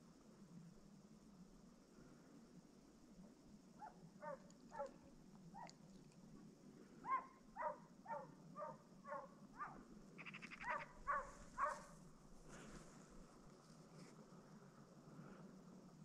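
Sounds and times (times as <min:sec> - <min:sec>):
dog barking: 0:03.8 - 0:05.0, 0:07.0 - 0:09.8, 0:10.6 - 0:12.0.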